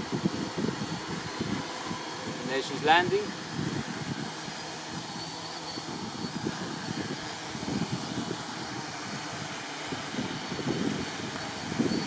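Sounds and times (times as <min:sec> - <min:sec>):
drone propellers whirring: 0:00.0 - 0:12.0
wind buffeting microphone: 0:00.0 - 0:12.0.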